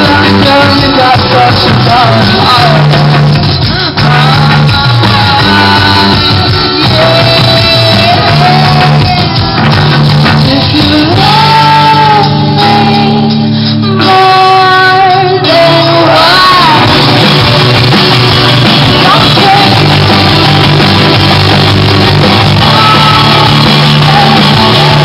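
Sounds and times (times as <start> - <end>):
drums: 0.0 - 25.0
electric guitars: 0.0 - 25.0
keyboard: 0.0 - 25.0
person singing: 0.0 - 25.0.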